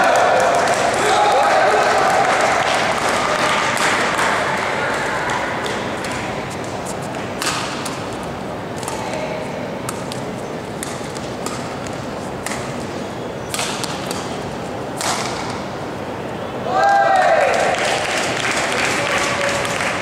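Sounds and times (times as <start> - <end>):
sports hall background noise: 0.0 - 20.0
rackets striking shuttlecock: 4.9 - 9.2, 9.8 - 15.7.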